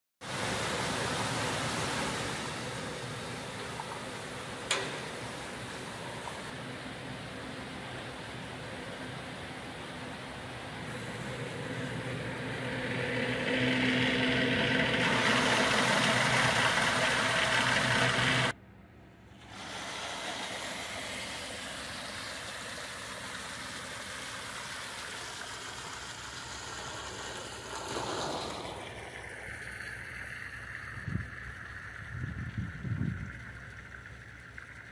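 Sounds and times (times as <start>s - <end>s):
water rushing from a hose: 0.2s - 18.5s, 19.4s - 34.9s
low mechanical hum: 0.3s - 34.9s.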